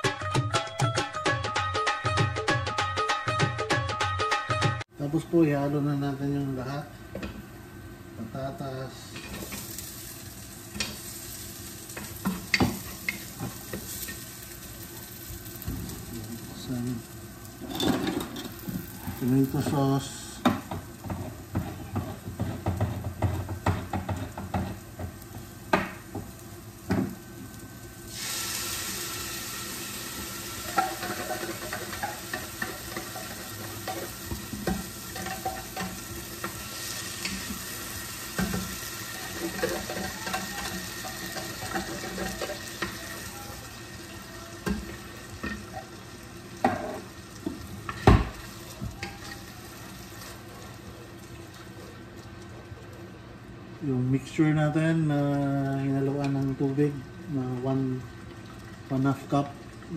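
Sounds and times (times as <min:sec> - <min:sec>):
food sizzling in oil: 0:05.4 - 0:52.4
wooden spoon stirring in pot: 0:20.6 - 0:25.2, 0:38.4 - 0:43.2.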